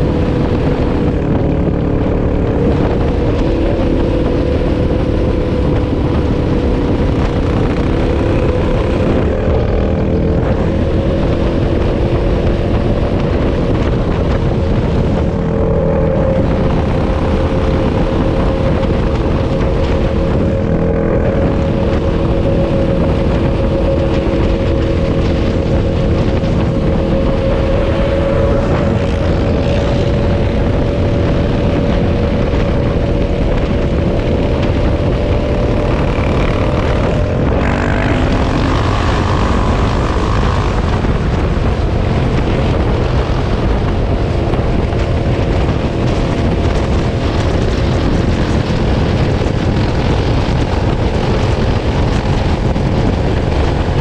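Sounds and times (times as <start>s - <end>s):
quad engine droning: 0.0s - 54.0s.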